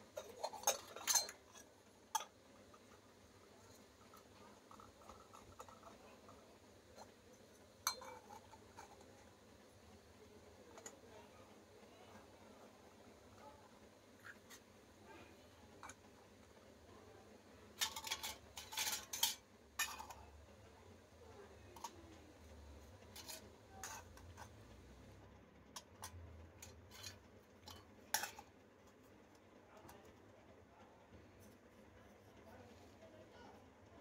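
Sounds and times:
metal toy dishes clinking: 0.2s - 7.1s, 7.8s - 9.2s, 17.7s - 20.4s, 21.6s - 22.2s, 23.0s - 24.7s, 25.8s - 28.5s.

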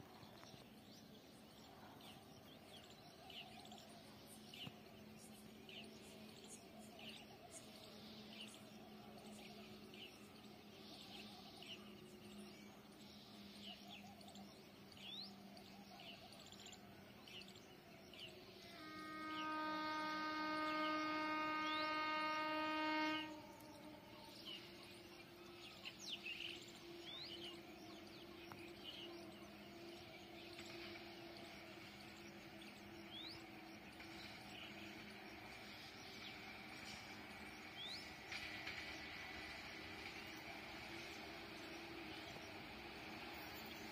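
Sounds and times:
distant train horn blast: 18.1s - 43.9s.

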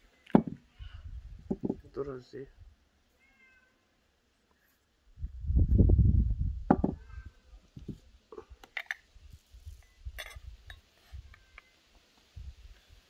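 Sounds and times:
spoon clinking in porcelain jar: 10.2s - 10.8s.

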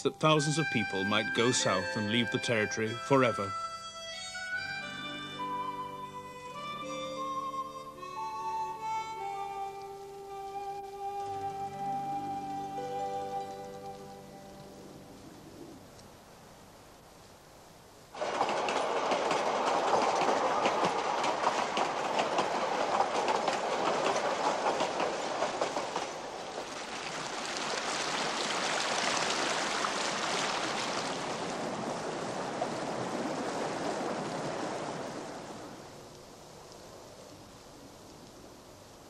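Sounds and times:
train wheels clicking on rails: 18.1s - 26.8s.

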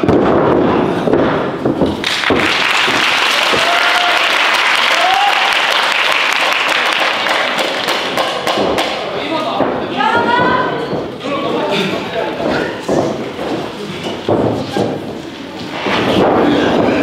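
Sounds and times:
audience applauding: 2.0s - 9.0s.

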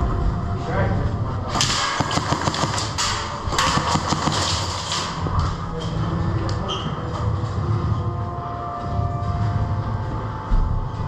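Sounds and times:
airsoft guns firing: 1.5s - 5.3s.

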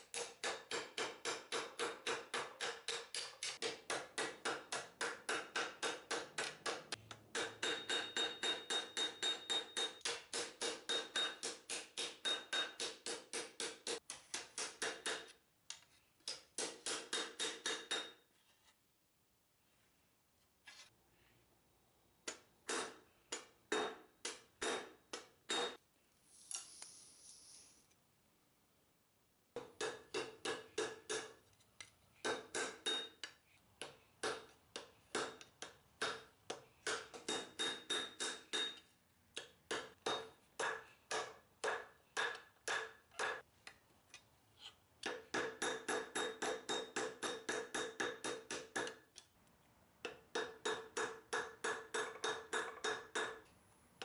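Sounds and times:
hammer striking metal on anvil: 0.0s - 15.3s, 16.3s - 18.2s, 22.3s - 25.8s, 29.6s - 31.4s, 32.2s - 33.4s, 36.9s - 38.8s, 39.7s - 43.4s, 45.0s - 49.0s, 50.3s - 53.4s.

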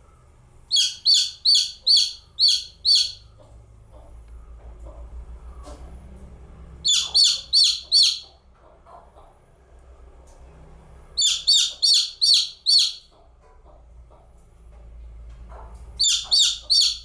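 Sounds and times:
chick peeping: 0.6s - 5.9s, 6.8s - 9.4s, 11.2s - 14.4s, 15.5s - 17.0s.

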